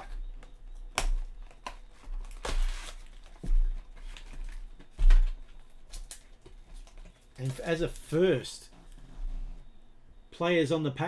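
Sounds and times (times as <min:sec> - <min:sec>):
cardboard ripping: 0:02.1 - 0:04.6.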